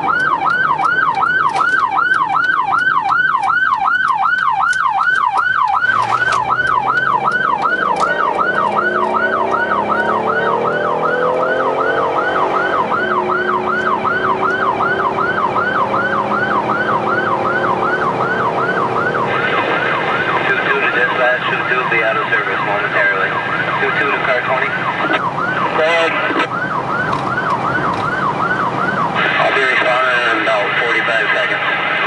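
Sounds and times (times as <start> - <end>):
electronic siren yelping: 0.0 - 31.2
vehicle engine revving: 5.1 - 30.6.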